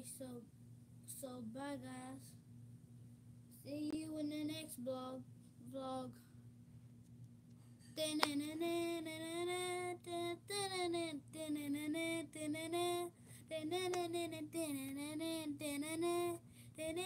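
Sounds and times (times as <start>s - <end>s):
girl singing unaccompanied: 0.0s - 0.4s, 1.1s - 2.4s, 3.6s - 6.2s, 8.0s - 17.0s.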